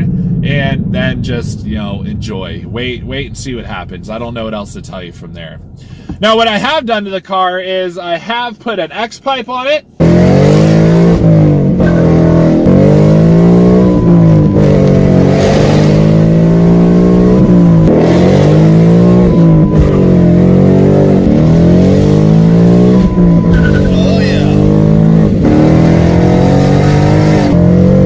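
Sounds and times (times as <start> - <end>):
car engine accelerating hard: 10.0 - 28.0.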